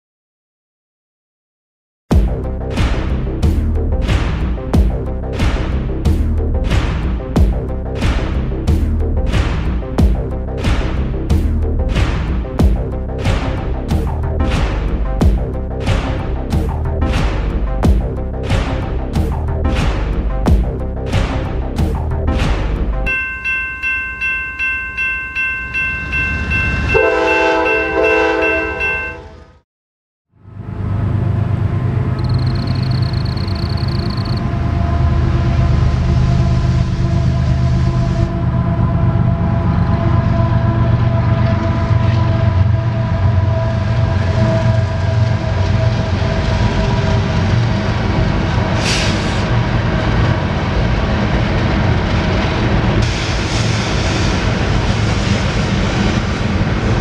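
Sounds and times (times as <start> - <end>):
theme music with heavy beat: 2.1 - 23.1
locomotive engine drone: 2.1 - 29.6, 30.4 - 57.0
steady higher tones: 21.1 - 29.2
railroad crossing bell ringing: 23.1 - 29.6, 32.2 - 34.4
train horn: 26.9 - 29.6, 34.4 - 47.8.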